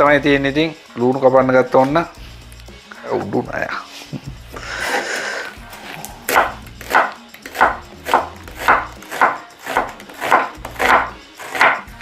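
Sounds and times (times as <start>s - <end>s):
knife slicing onion on wooden board: 5.9s - 12.0s.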